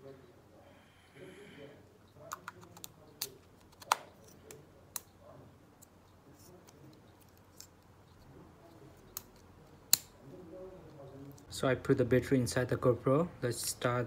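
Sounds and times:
plastic clicks and snaps: 0:02.3 - 0:05.1, 0:09.1 - 0:10.2.

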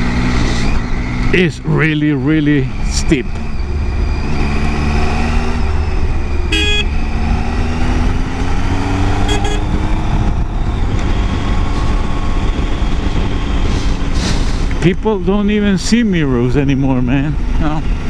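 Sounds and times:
motorcycle engine: 0:00.0 - 0:18.0
wind rumble: 0:00.0 - 0:18.0
horn toots: 0:06.5 - 0:07.1, 0:09.2 - 0:09.8.

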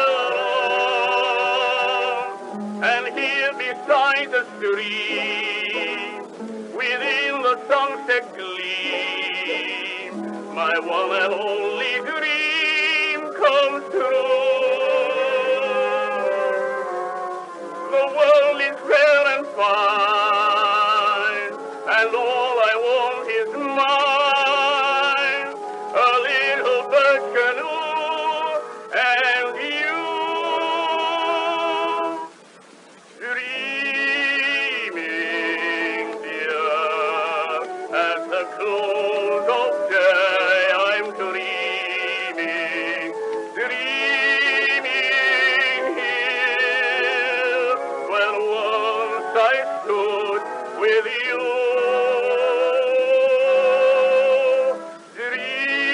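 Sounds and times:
man singing a ballad: 0:00.0 - 0:16.9, 0:17.8 - 0:32.3, 0:33.2 - 0:55.9.

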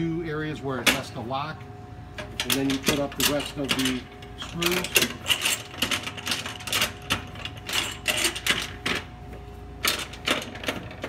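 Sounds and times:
knobs clicking and rattling: 0:02.2 - 0:09.1, 0:09.8 - 0:11.0.

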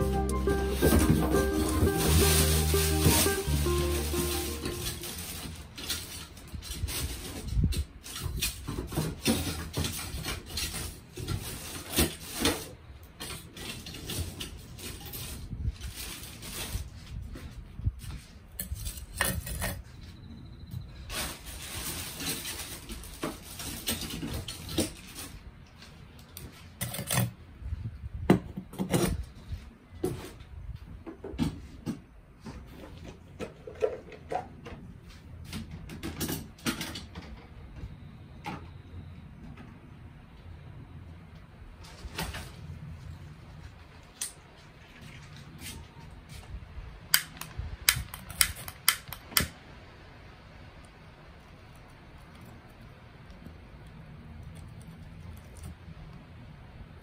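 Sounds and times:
objects rustling and clinking: 0:00.0 - 0:20.1, 0:21.1 - 0:27.4.

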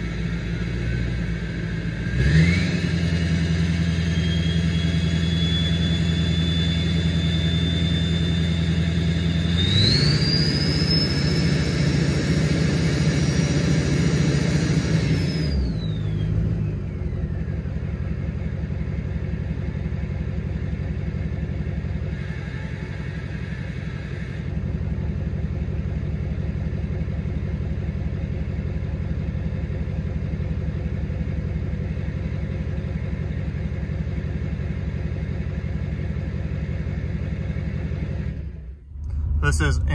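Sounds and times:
diesel engine revving: 0:00.0 - 0:17.7, 0:37.4 - 0:39.9
turbo whistle: 0:04.1 - 0:08.7, 0:09.4 - 0:11.9.

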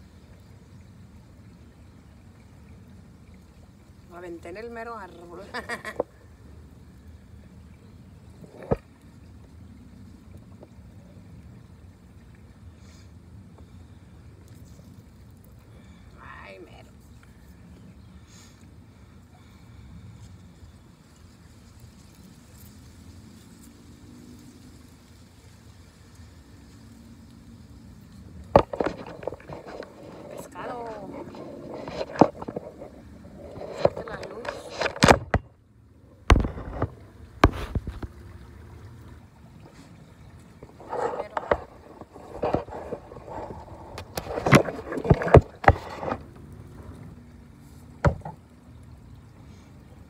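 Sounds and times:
gear knocking in a kayak: 0:28.3 - 0:35.6, 0:36.2 - 0:38.2, 0:40.6 - 0:47.2, 0:48.0 - 0:48.5
faint engine-like hum: 0:38.0 - 0:40.7, 0:46.2 - 0:50.0.

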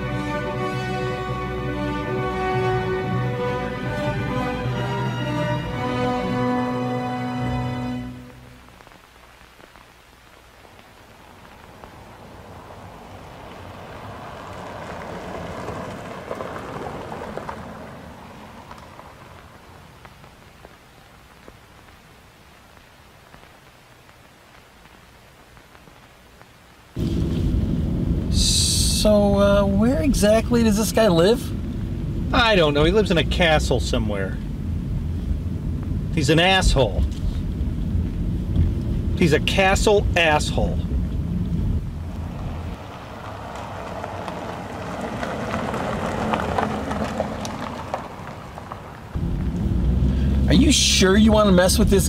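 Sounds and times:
faint hiss with soft crackles: 0:05.5 - 0:52.0
car cabin road and engine rumble: 0:27.0 - 0:52.0.

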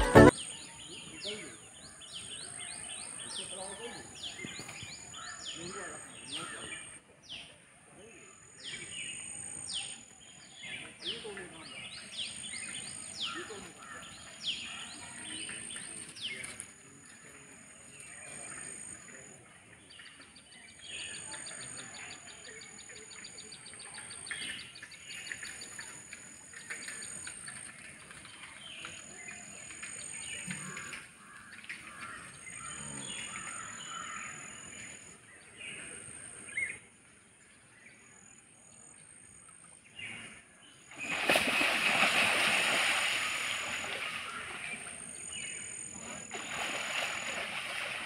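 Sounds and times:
birds chirping: 0:39.8 - 0:48.0
water splashing: 0:40.9 - 0:48.0.

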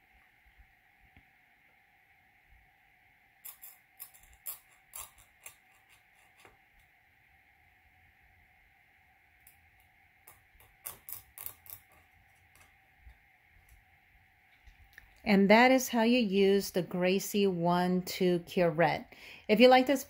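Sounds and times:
faint steady hum: 0:00.0 - 0:20.0
metal blade scraping plastic teeth: 0:03.4 - 0:06.5, 0:10.3 - 0:12.7.

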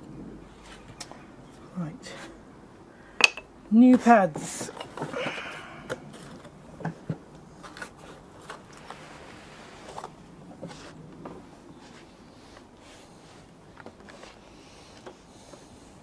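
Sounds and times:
rustling: 0:04.4 - 0:16.0.

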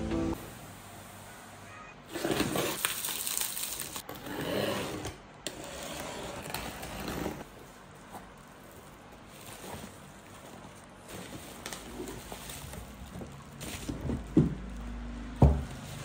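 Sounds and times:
plastic wrap crinkling and tearing: 0:02.3 - 0:04.1, 0:07.4 - 0:16.0.

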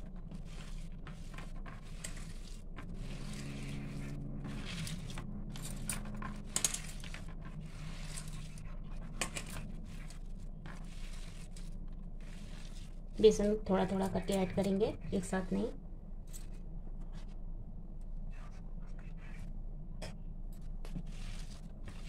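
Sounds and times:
hand mixing food in steel plate: 0:00.0 - 0:15.7, 0:20.7 - 0:22.0.

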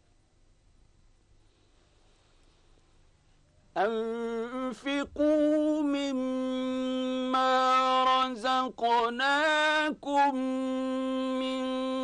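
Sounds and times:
man reciting melodically: 0:03.8 - 0:12.0.

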